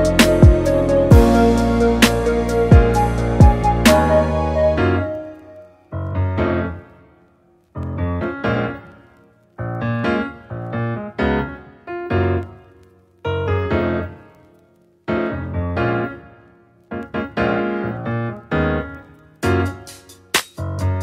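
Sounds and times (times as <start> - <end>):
solo piano playing slow chords: 0.0 - 7.1, 15.1 - 19.8.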